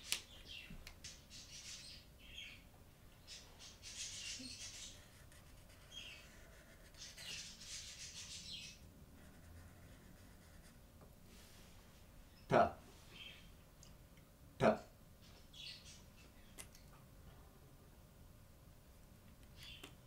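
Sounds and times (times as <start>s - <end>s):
marker squeaking on paper: 3.8s - 10.7s.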